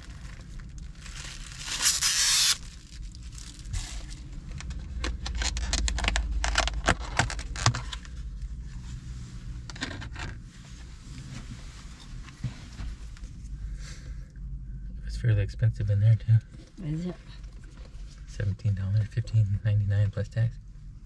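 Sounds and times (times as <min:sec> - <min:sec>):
packaging crinkling rustle: 0:00.0 - 0:08.2.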